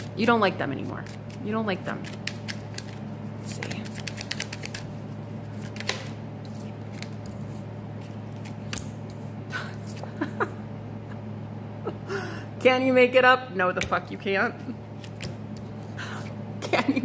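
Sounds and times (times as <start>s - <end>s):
low electrical hum: 0.0s - 17.0s
cards shuffling: 0.8s - 10.0s, 15.0s - 16.4s.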